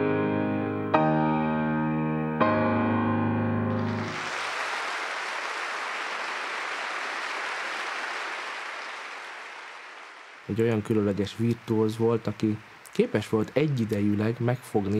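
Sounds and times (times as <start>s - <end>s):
piano chord ringing: 0.0s - 4.1s
audience applause: 3.7s - 14.9s.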